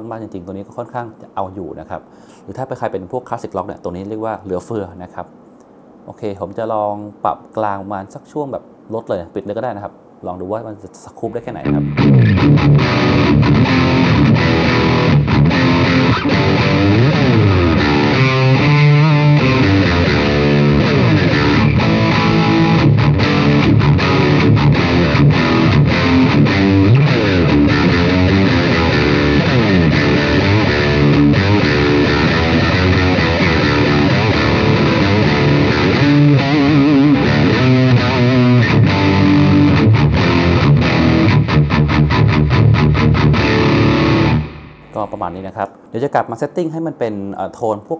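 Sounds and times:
distorted electric guitar riffs: 11.3s - 45.5s.

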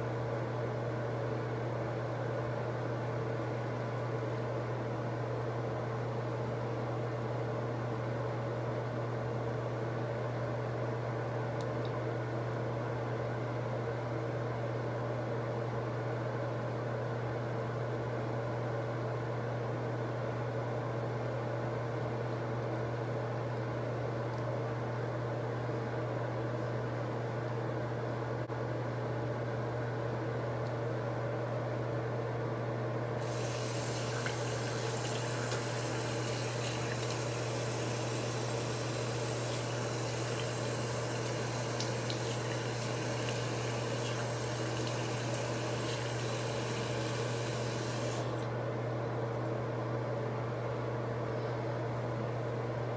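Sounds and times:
tap water running into sink: 33.2s - 48.3s.

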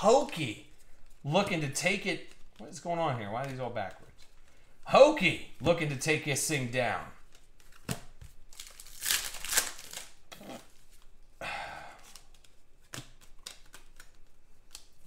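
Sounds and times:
trading cards shuffling: 0.1s - 4.6s, 7.2s - 11.2s, 12.0s - 15.0s.

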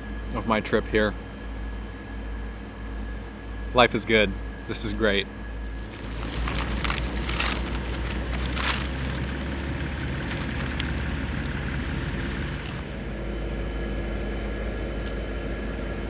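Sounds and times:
low engine drone: 0.0s - 16.0s
paper wrapper crinkling: 5.6s - 13.0s
fries crunching and snapping: 5.6s - 13.1s.

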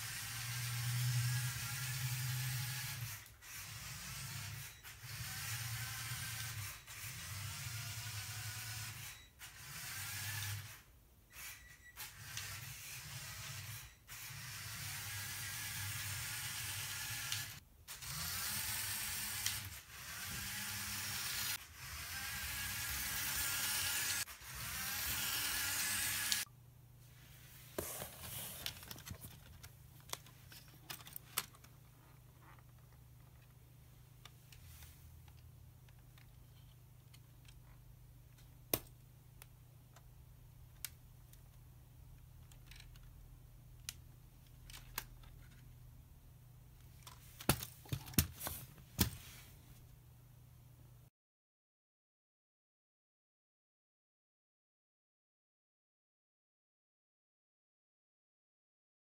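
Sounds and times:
toy motor whirring and rattling: 0.0s - 26.5s, 42.4s - 43.1s.

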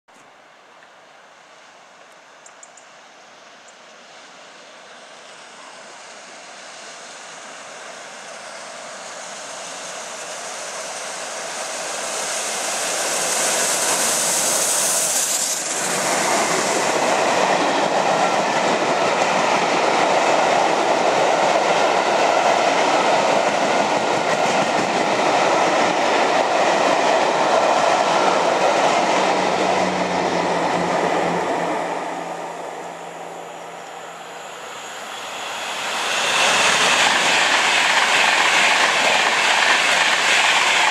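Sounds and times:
steam locomotive hissing: 4.0s - 40.9s
train carriages rolling over rails: 10.8s - 31.8s, 35.4s - 40.9s.

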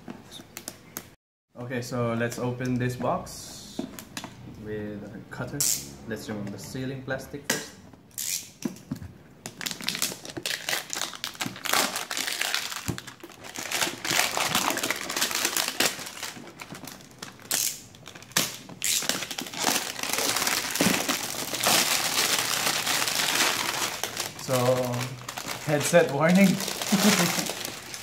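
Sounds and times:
plastic shrink-wrap crinkling: 9.5s - 28.0s.

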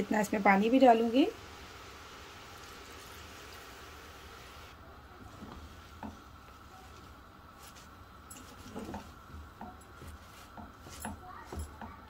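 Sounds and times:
spatula tapping pot: 8.4s - 12.0s.

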